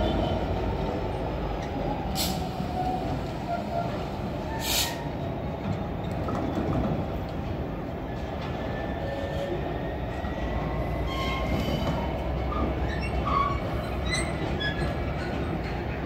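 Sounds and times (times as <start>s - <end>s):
train rumbling past: 0.0s - 16.0s
train wheel squeals: 8.2s - 16.0s.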